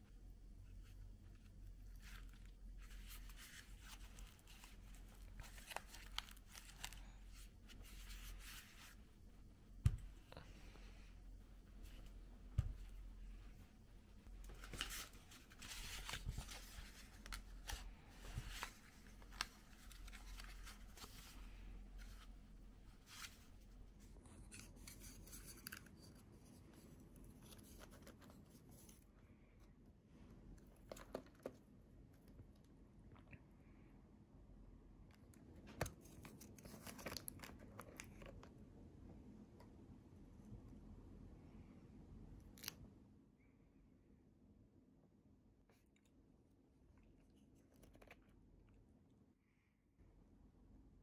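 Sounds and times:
rustling and crinkling handling: 0:00.6 - 0:29.1, 0:35.6 - 0:38.6
faint light clicks and scratches: 0:47.0 - 0:48.8.

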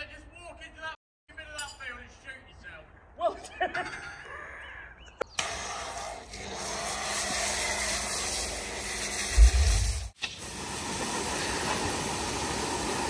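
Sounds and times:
pressure washer jet hissing: 0:05.4 - 0:13.0.

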